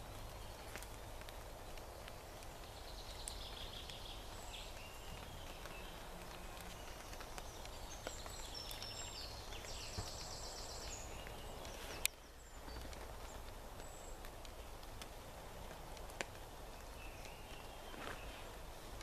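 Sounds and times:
faint steady hiss: 0:00.0 - 0:19.0
water dripping: 0:00.0 - 0:19.0.

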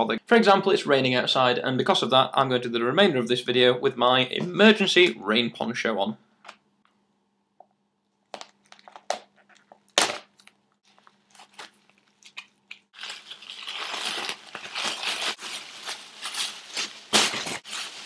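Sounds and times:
plastic packet crinkling: 0:08.4 - 0:18.0
plastic sheet rustling: 0:12.9 - 0:18.0.

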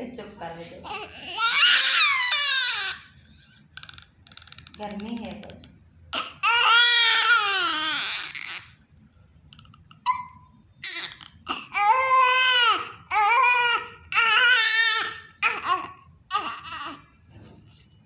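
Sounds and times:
baby crying: 0:00.8 - 0:03.1, 0:06.1 - 0:08.8, 0:10.1 - 0:17.1.

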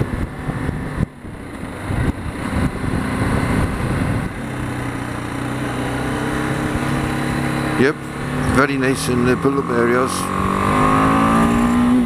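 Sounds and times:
wind rush: 0:00.0 - 0:04.8
motorcycle engine running: 0:00.0 - 0:12.0.

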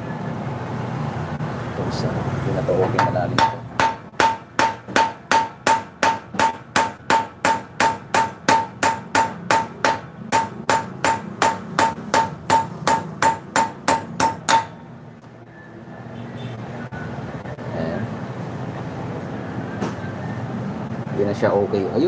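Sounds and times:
hammer striking metal stud: 0:02.9 - 0:14.8.

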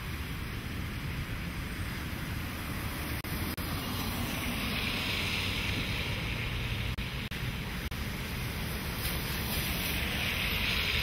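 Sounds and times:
car tyres hissing on wet road: 0:00.0 - 0:11.0
wind rumbling on microphone: 0:00.0 - 0:11.0.

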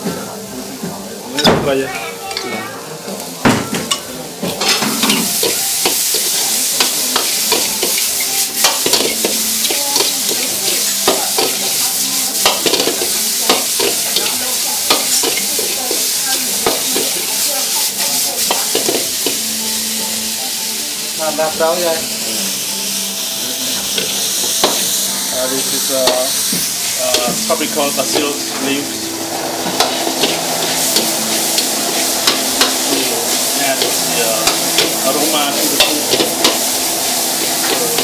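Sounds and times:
food sizzling in hot oil: 0:00.0 - 0:38.0
metal ladle scraping wok: 0:26.9 - 0:38.0.

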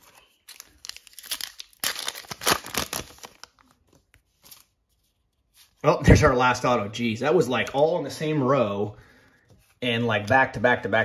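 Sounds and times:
foil wrapper tearing and crinkling: 0:00.4 - 0:03.8.

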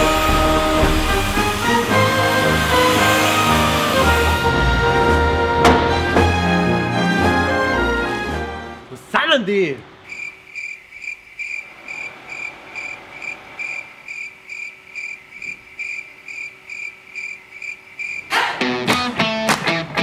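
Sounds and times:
cricket chirping: 0:10.0 - 0:18.3.

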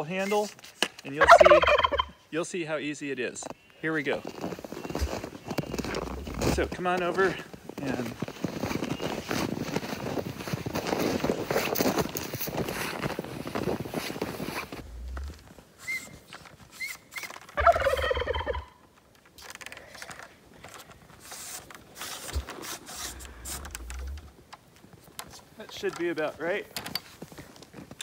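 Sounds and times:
turkey gobbling: 0:01.2 - 0:02.2, 0:17.6 - 0:18.8
boots crunching through snow: 0:04.0 - 0:16.0
broom brushing snow: 0:21.2 - 0:24.2.

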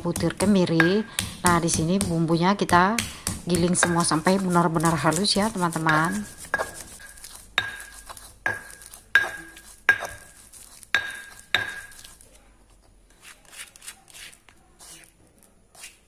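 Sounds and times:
pestle grinding in mortar: 0:00.0 - 0:12.2
stone knocking on stone: 0:00.1 - 0:10.3, 0:10.9 - 0:12.1.

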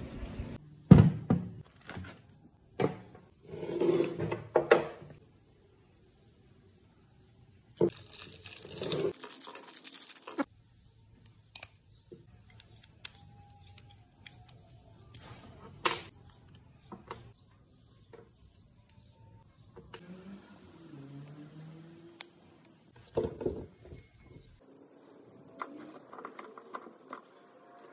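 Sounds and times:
plastic bag crinkling: 0:07.9 - 0:10.5
small metal parts clicking: 0:12.4 - 0:15.2.

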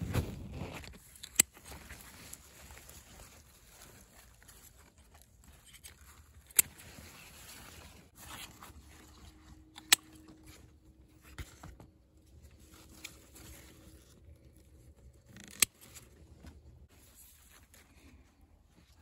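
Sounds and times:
pruning shears snipping: 0:01.0 - 0:01.7, 0:09.7 - 0:10.4.

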